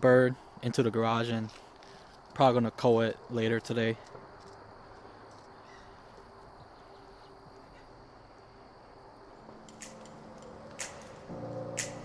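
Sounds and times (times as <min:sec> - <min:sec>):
high insect drone: 0:03.9 - 0:12.0
short sharp clicks: 0:09.7 - 0:12.0.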